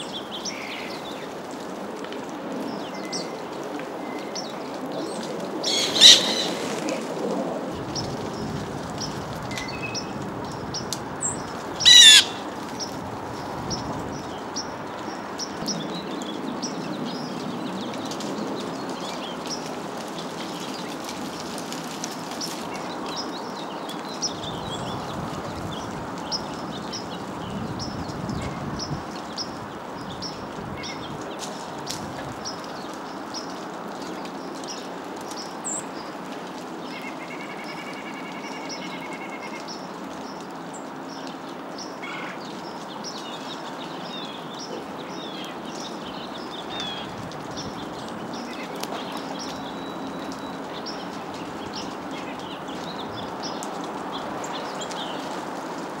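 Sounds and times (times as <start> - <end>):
songbirds chirping: 2.4 - 56.0
long bird call: 5.6 - 6.8, 11.8 - 12.5.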